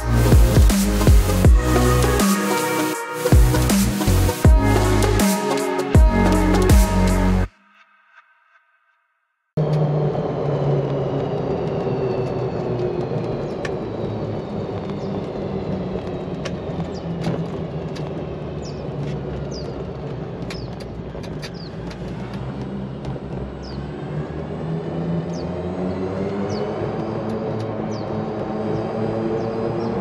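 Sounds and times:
tyre and wind noise: 0:11.0 - 0:24.2
birds chirping: 0:18.4 - 0:22.2, 0:23.4 - 0:24.0, 0:25.2 - 0:30.0.

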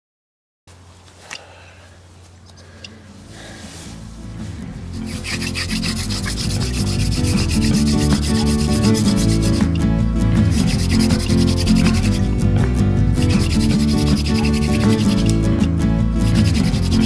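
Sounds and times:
fast scratchy rhythm music: 0:04.8 - 0:17.0.

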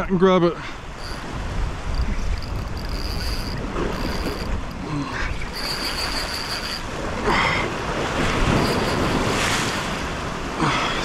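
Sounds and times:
surf washing around rocks: 0:00.6 - 0:11.0
wind on microphone: 0:00.8 - 0:10.5
thin high whine: 0:00.9 - 0:04.8, 0:05.4 - 0:06.9, 0:08.3 - 0:10.1.

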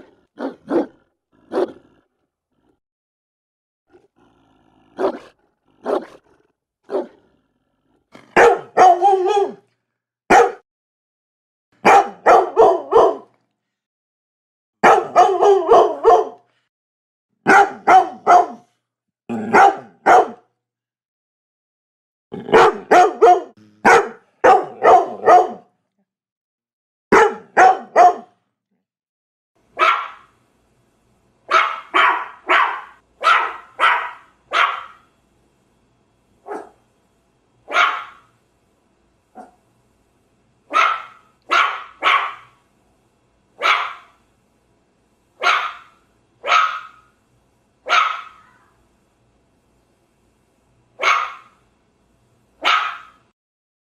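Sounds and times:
dog barking: 0:00.0 - 0:01.8, 0:05.0 - 0:06.2, 0:06.9 - 0:07.2, 0:08.3 - 0:09.7, 0:10.3 - 0:10.6, 0:11.8 - 0:13.4, 0:14.8 - 0:16.4, 0:17.4 - 0:18.7, 0:19.4 - 0:20.5, 0:22.5 - 0:25.7, 0:27.1 - 0:28.4, 0:29.8 - 0:30.3, 0:31.5 - 0:35.1, 0:36.4 - 0:36.8, 0:37.7 - 0:38.3, 0:39.4 - 0:39.6, 0:40.7 - 0:42.6, 0:43.6 - 0:44.2, 0:45.4 - 0:47.1, 0:47.8 - 0:48.7, 0:51.0 - 0:51.6, 0:52.6 - 0:53.3.

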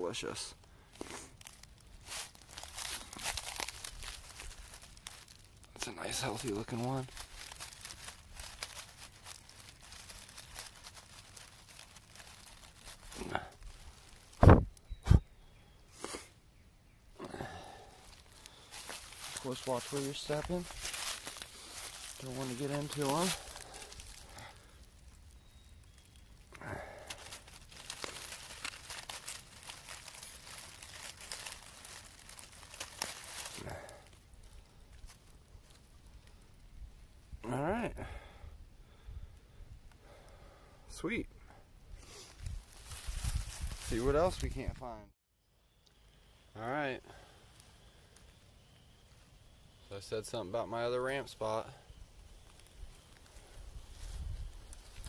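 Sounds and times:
dry leaves crackling and rustling: 0:00.2 - 0:14.5, 0:17.5 - 0:36.6, 0:42.0 - 0:44.9, 0:47.1 - 0:55.0
breathy exhale: 0:17.2 - 0:18.9.

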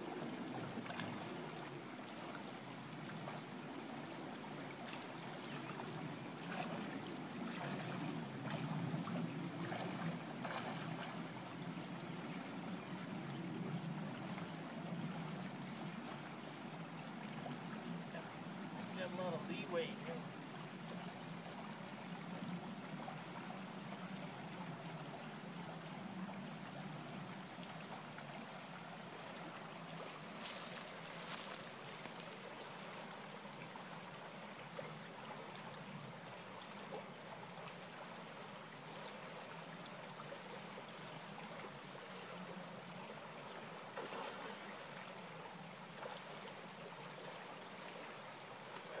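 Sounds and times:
creek water flowing: 0:00.0 - 0:49.0.

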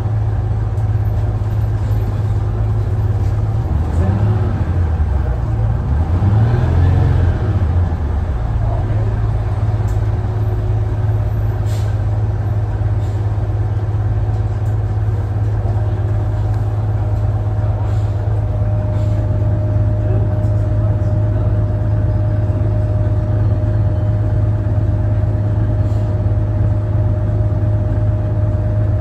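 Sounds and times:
bus motor drone: 0:00.0 - 0:29.0.

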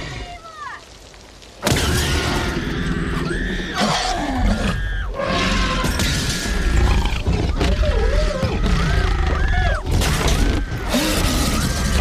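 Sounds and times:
children screaming: 0:06.4 - 0:12.0.

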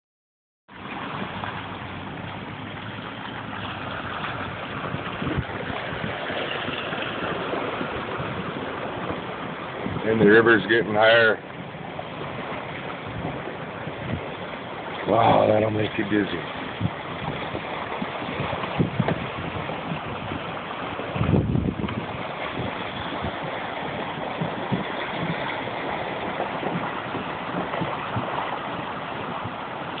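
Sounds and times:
vehicle rolling over wooden bridge: 0:00.7 - 0:10.7, 0:11.4 - 0:30.0
river rushing with broken ice: 0:00.7 - 0:30.0
low thumps: 0:16.5 - 0:30.0
low thump: 0:18.4 - 0:20.0.

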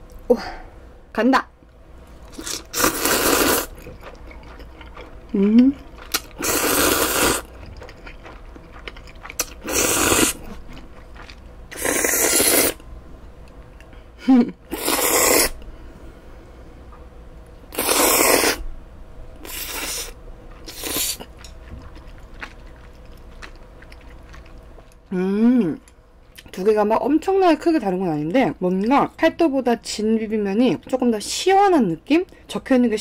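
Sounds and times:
chewing: 0:02.3 - 0:12.2, 0:20.5 - 0:25.0
noodles slurped: 0:02.3 - 0:12.8, 0:14.7 - 0:15.6, 0:17.7 - 0:18.6, 0:19.4 - 0:24.6.

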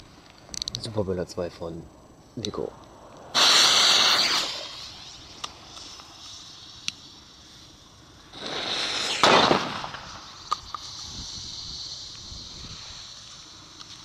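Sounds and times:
firecracker fuse hissing: 0:03.2 - 0:14.0.

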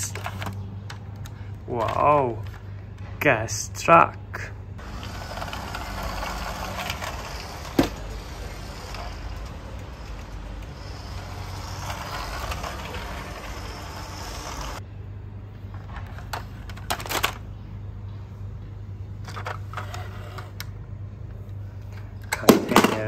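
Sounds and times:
plastic toy trucks clicking: 0:00.0 - 0:02.7, 0:04.8 - 0:14.8, 0:15.9 - 0:17.4, 0:21.9 - 0:23.0
toy truck motor whirring: 0:00.0 - 0:02.7, 0:04.8 - 0:14.8, 0:19.2 - 0:20.7
low room hum: 0:00.0 - 0:23.0.

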